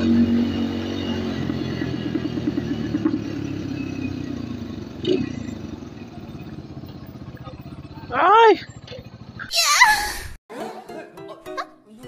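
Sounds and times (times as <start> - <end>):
motorcycle engine running: 0.0 - 9.5.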